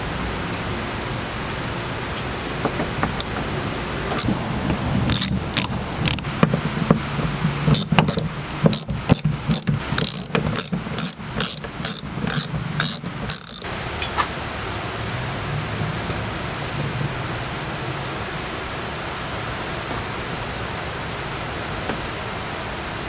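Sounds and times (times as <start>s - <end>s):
ratchet handle clicking: 5.1s - 6.3s, 7.7s - 13.7s.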